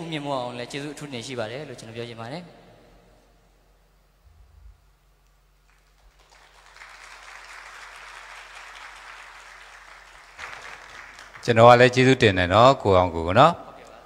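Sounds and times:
applause: 0:05.6 - 0:12.0.

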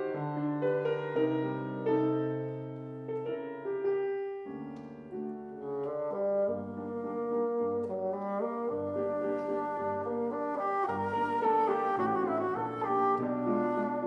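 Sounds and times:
piano accompaniment: 0:00.0 - 0:14.0
bassoon melody: 0:05.6 - 0:14.0.

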